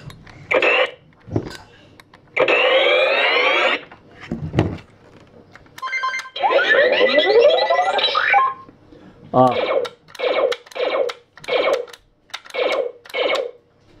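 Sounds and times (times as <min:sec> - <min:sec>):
rising laser sweep: 0:02.4 - 0:03.8, 0:06.3 - 0:08.6
warbling rising laser sound: 0:02.5 - 0:03.8, 0:06.4 - 0:08.6.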